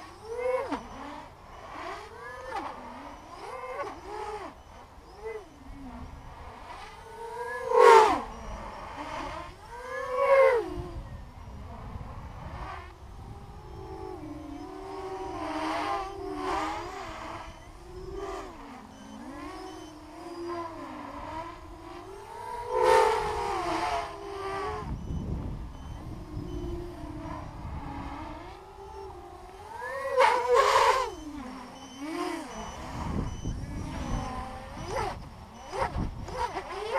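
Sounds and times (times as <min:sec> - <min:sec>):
drone motors whining: 0:00.0 - 0:36.9.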